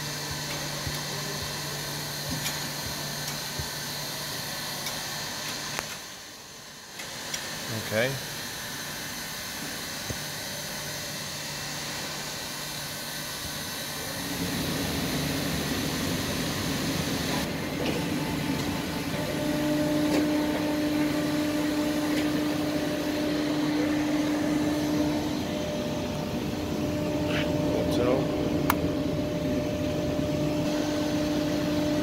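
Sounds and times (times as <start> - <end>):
machine hum: 0.0 - 32.0
strong steady tone: 18.1 - 32.0.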